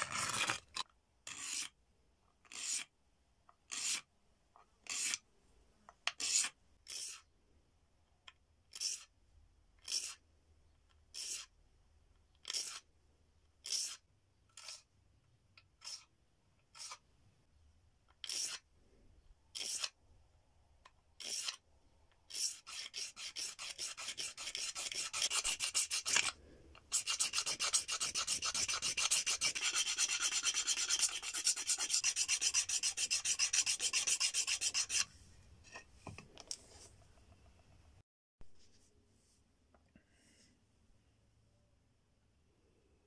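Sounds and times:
stone flake scraping bone: 0.0 - 1.8, 2.4 - 2.9, 3.7 - 4.1, 9.8 - 10.2, 12.4 - 12.8, 16.7 - 17.0, 18.2 - 18.6, 19.5 - 20.0, 21.2 - 21.6, 22.3 - 35.1.

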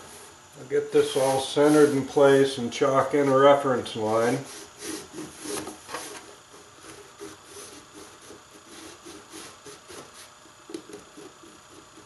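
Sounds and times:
chalk scratching: 1.0 - 2.1, 4.4 - 12.0.

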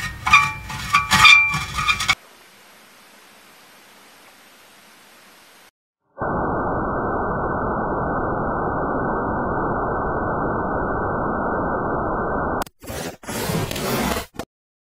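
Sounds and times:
loud low static noise: 2.1 - 12.6.

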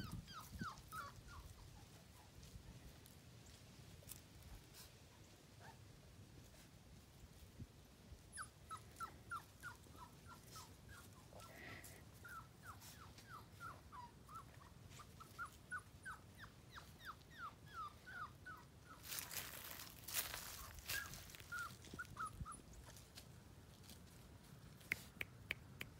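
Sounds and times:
puppy whimpering: 0.0 - 2.5, 8.3 - 19.4, 20.6 - 23.1.

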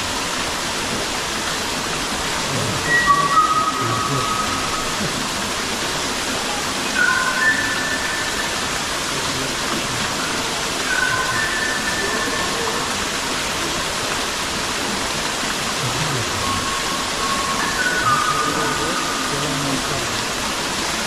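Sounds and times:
waterfall rushing: 0.0 - 21.0
faint high whistling tones: 2.5 - 5.1, 6.8 - 9.5, 10.1 - 13.0, 16.3 - 20.2.

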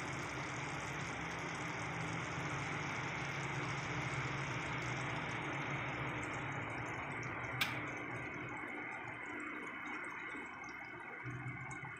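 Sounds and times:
sharp click: 7.6 - 7.8.

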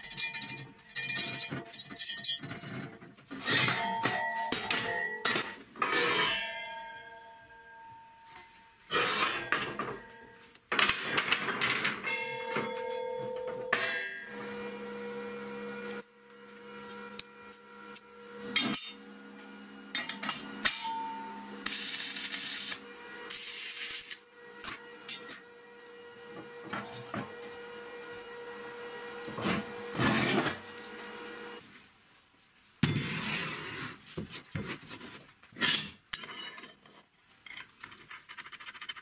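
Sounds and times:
welding hiss: 21.6 - 24.2.

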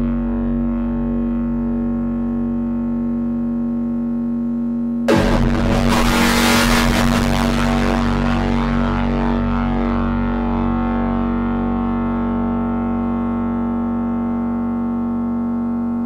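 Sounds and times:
burst of harsh noise: 5.1 - 9.4
synthesizer drone: 5.1 - 12.9.

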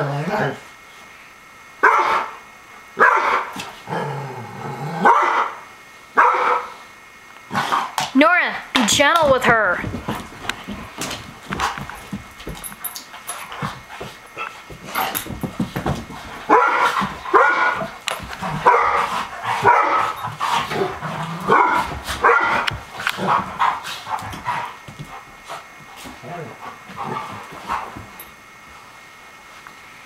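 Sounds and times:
dogs barking and yipping: 6.2 - 6.7, 16.3 - 24.6
dogs scuffling: 8.7 - 28.4.

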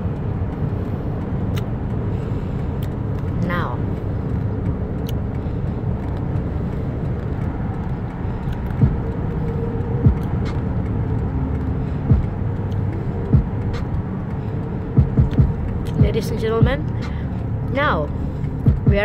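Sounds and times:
car engine and tyre rumble: 0.0 - 19.0
low thumps: 8.5 - 14.2, 14.9 - 19.0.

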